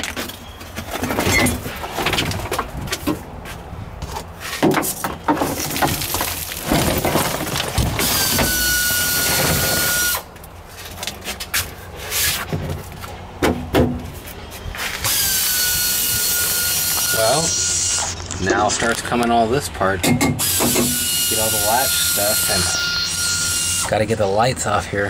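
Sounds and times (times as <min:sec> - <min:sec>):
power tool whining: 0:07.8 - 0:10.3, 0:15.0 - 0:18.4, 0:20.4 - 0:23.9.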